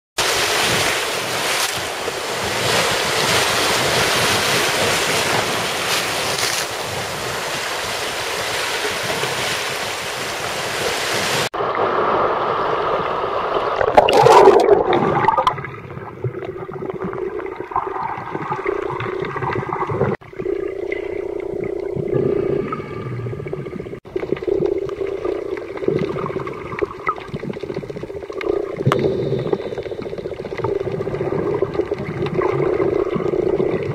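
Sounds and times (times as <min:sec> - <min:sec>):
surf breaking over rocks: 0:00.2 - 0:15.7
muffled underwater churning: 0:00.2 - 0:33.9.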